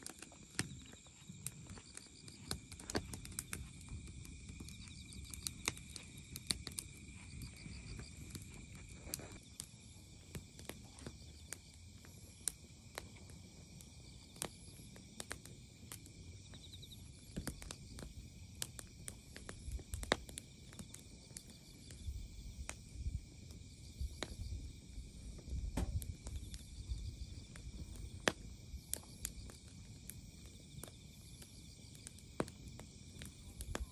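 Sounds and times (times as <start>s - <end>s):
firewood crackling and popping: 0.0s - 33.9s
night insects chirping: 0.0s - 33.9s.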